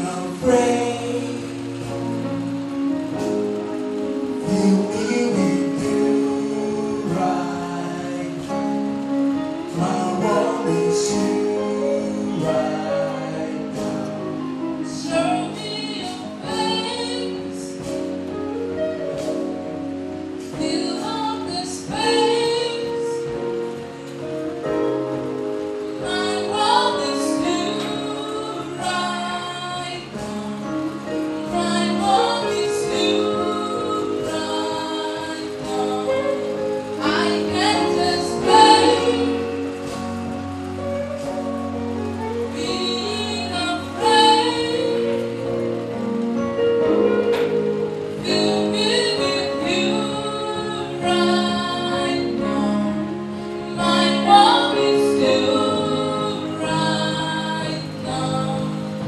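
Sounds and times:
gospel choir singing: 0.0s - 59.0s.

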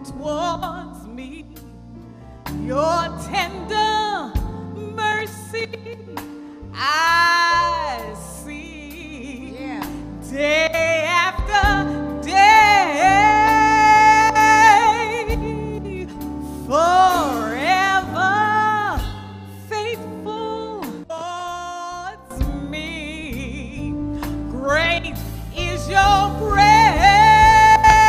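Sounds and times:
vocal group singing a slow song: 25.5s - 28.0s.

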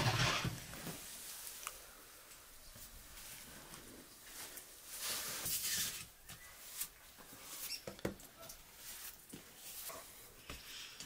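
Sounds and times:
flour rustling on a board: 8.7s - 10.8s.

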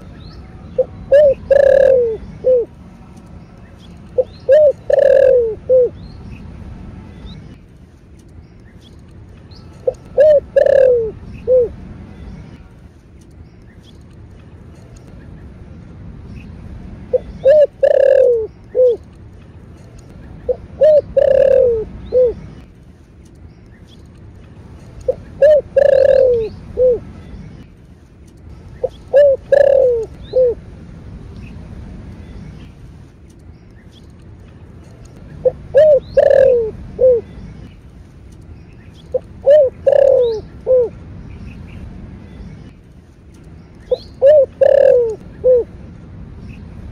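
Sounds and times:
dove cooing: 0.8s - 2.8s, 4.2s - 6.0s, 9.8s - 11.8s, 17.1s - 19.1s, 20.4s - 22.5s, 25.0s - 27.1s, 28.8s - 30.6s, 35.4s - 37.3s, 39.1s - 41.0s, 43.9s - 45.8s.

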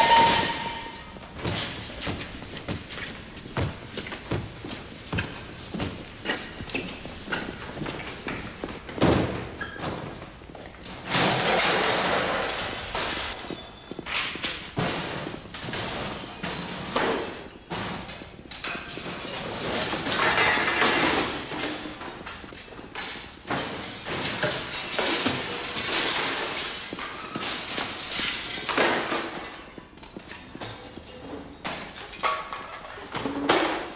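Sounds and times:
heavy footsteps: 0.0s - 10.8s.

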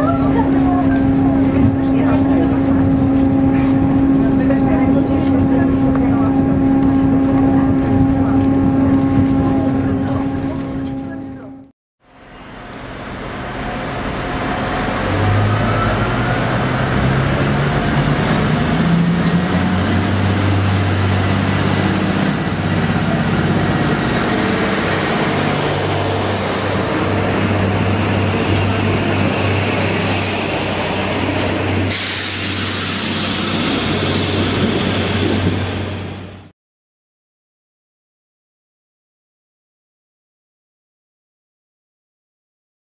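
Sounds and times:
diesel railcar engine running: 0.0s - 36.5s
engine whine: 0.2s - 36.5s
loud hiss: 31.9s - 34.0s.

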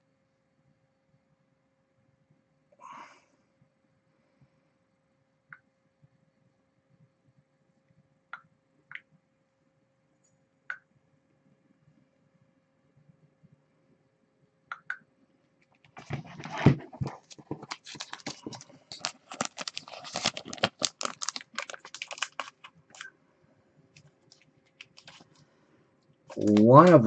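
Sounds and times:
plastic sleeve crackling: 16.0s - 23.1s, 24.0s - 25.4s, 26.3s - 27.0s.

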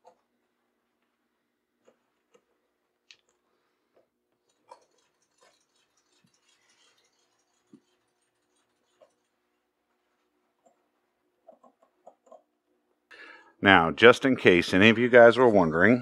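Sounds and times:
tool scratching on leather: 4.5s - 9.5s.

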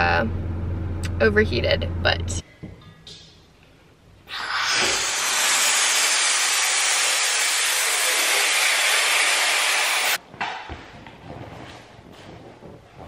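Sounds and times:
helium hissing into balloon: 4.3s - 10.2s.

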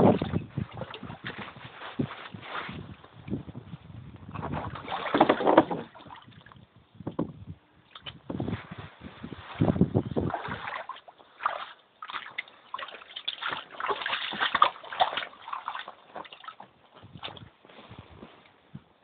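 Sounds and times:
floodwater sloshing and splashing: 0.0s - 3.0s, 4.3s - 6.7s, 9.4s - 17.6s.

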